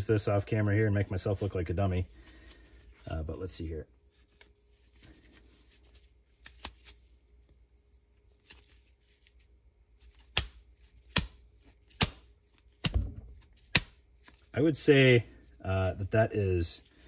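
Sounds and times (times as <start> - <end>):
straps rustling: 0.2 - 14.7
straps snapping taut: 6.4 - 7.0, 10.0 - 14.5.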